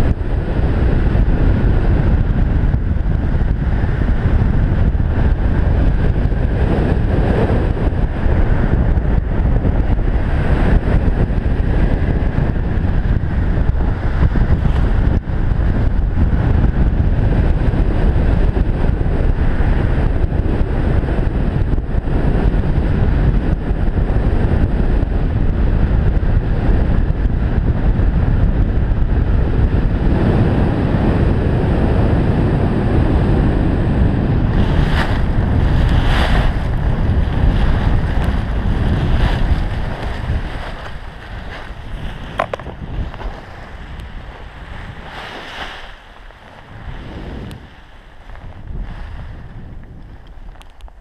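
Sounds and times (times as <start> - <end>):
wind buffeting microphone: 0.0 - 51.0
skis scraping over snow: 32.9 - 51.0.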